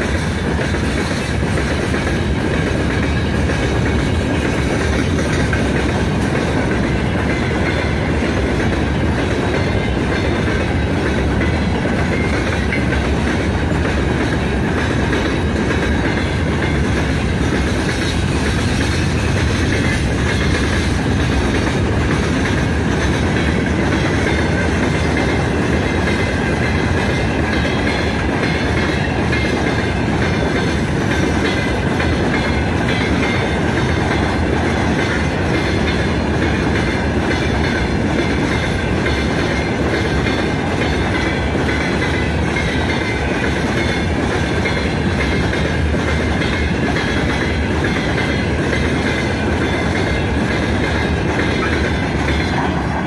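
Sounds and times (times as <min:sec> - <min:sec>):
freight train rumbling past: 0:00.0 - 0:53.0
wheels clacking on rails: 0:00.0 - 0:53.0.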